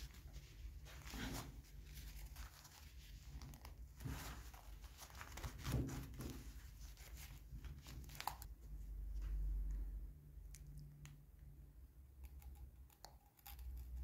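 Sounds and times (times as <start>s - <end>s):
work gloves rustling and rubbing: 0.0s - 9.4s.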